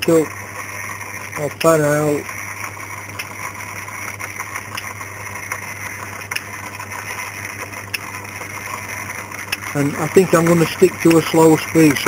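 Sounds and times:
lathe motor hum: 0:00.0 - 0:12.0.

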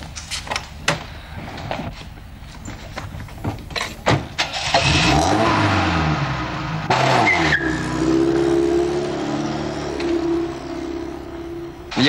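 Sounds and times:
car engine revving: 0:04.4 - 0:12.0.

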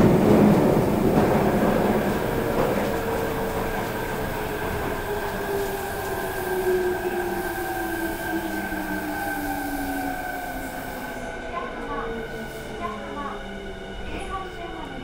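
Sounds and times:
wheel and rail rumble: 0:00.0 - 0:06.3.

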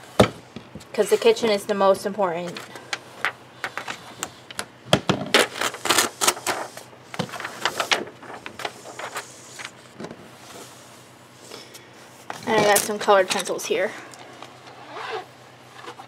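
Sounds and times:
paper sheets rustling and sliding: 0:05.4 - 0:10.9.

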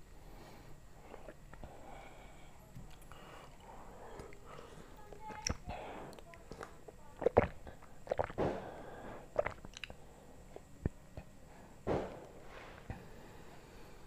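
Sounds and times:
person gulping a drink: 0:05.3 - 0:10.0.

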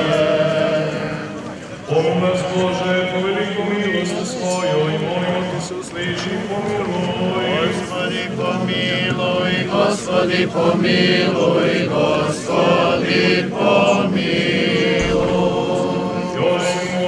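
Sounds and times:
group of voices chanting: 0:06.7 - 0:17.0.

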